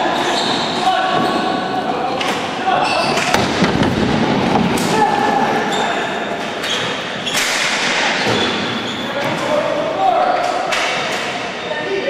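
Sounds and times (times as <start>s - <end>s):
players' voices: 0.0s - 12.0s
hockey sticks and ball clacking: 2.1s - 9.7s.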